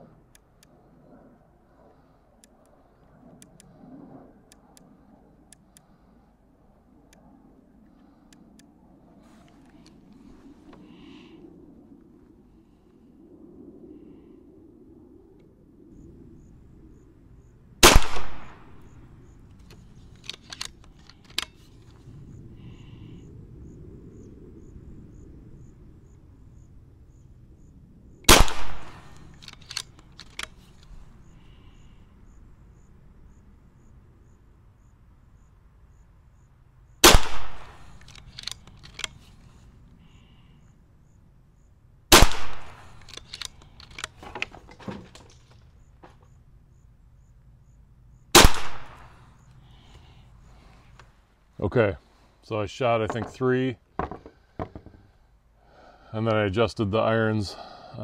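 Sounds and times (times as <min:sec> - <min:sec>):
light clicks: 0:02.4 - 0:03.7, 0:29.0 - 0:31.0, 0:37.6 - 0:39.5, 0:42.6 - 0:44.5
air rifle shots: 0:17.8 - 0:19.0, 0:28.3 - 0:30.6, 0:37.0 - 0:39.2, 0:42.1 - 0:44.2, 0:48.3 - 0:49.3.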